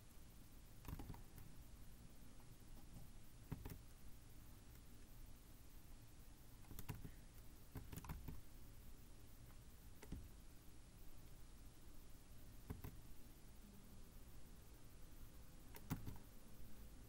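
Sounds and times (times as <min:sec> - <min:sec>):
computer mouse and key clicks: 0:00.8 - 0:01.5, 0:02.8 - 0:03.8, 0:06.6 - 0:08.5, 0:09.5 - 0:10.3, 0:12.6 - 0:13.0, 0:15.7 - 0:16.3.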